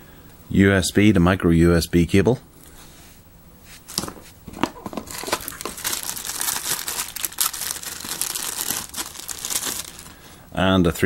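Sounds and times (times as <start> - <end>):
hands handling cable and packaging: 3.8 - 10.3.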